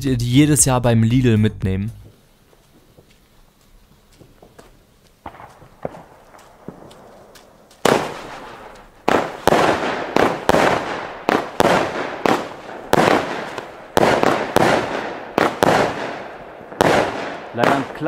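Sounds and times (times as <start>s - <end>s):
firework shots: 4.2s - 18.0s
firework burst rush: 7.8s - 18.0s.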